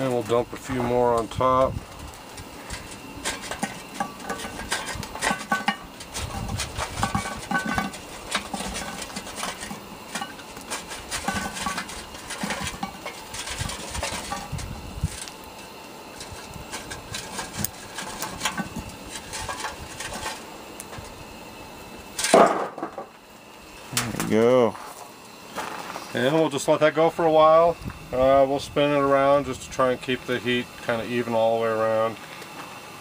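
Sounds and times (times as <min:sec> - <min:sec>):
charcoal clattering onto metal lid: 0:00.0 - 0:15.4, 0:16.1 - 0:21.2, 0:22.1 - 0:23.2.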